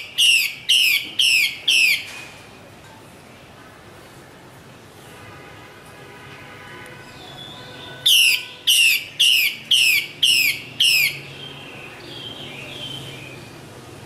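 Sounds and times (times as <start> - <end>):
bird calling downward-slurred notes: 0.0 - 2.1, 7.2 - 13.3.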